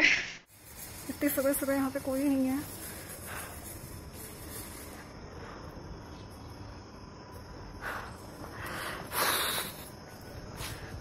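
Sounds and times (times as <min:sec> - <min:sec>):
steady low hiss: 0:00.0 - 0:11.0
rustling: 0:00.5 - 0:05.3.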